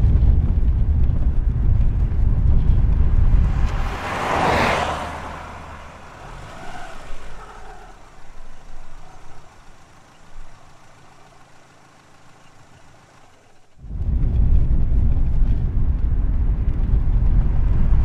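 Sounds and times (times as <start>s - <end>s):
traffic rumble: 0.0s - 18.0s
vehicle passing whoosh: 1.5s - 11.0s.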